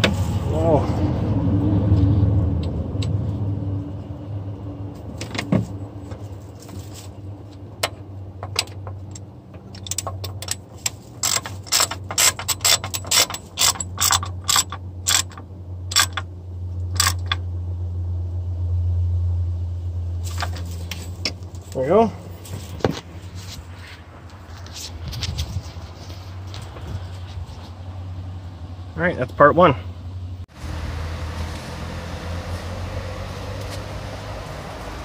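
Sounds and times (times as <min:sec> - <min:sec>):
hand ratchet clicking: 0:09.8 - 0:16.2.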